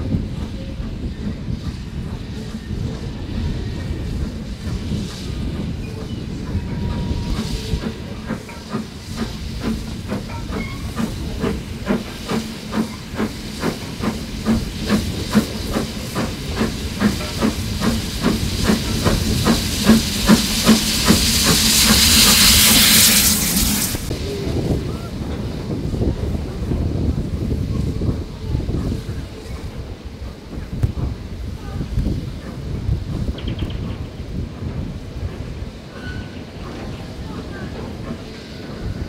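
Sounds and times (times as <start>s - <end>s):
loud steam hiss: 0.0s - 39.0s
steam locomotive chuffing: 0.0s - 39.0s.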